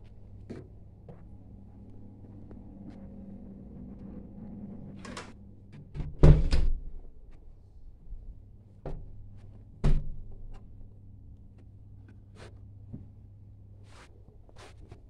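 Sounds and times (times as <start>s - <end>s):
steady low hum: 0.0s - 15.0s
heavy door thuds: 6.0s - 6.9s, 9.8s - 10.3s.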